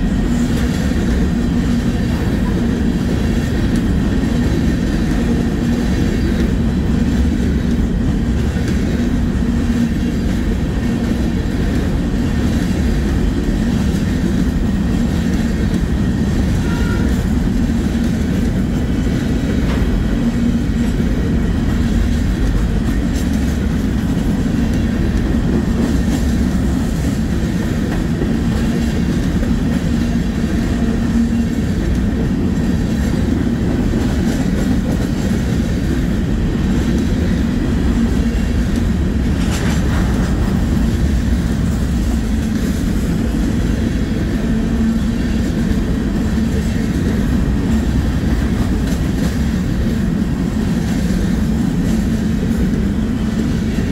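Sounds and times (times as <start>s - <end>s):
freight train rumbling on rails: 0.0s - 53.9s.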